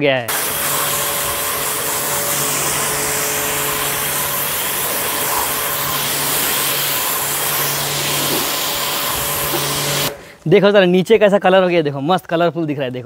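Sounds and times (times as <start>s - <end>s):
pressure washer motor humming: 0.3s - 10.4s
water jet hissing: 0.3s - 10.4s.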